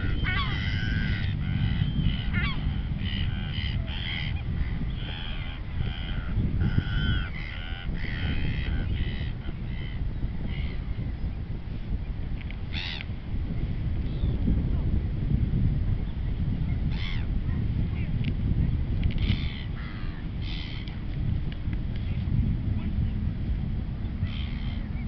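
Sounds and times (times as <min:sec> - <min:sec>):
gulls squawking: 0:00.0 - 0:10.9, 0:24.2 - 0:25.0
wind rumble on microphone: 0:00.0 - 0:25.0.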